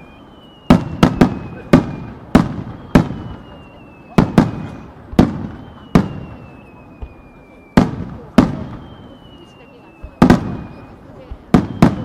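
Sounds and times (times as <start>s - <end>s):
faint descending whistle: 0.0s - 12.0s
fireworks bursting with echoes: 0.0s - 12.0s.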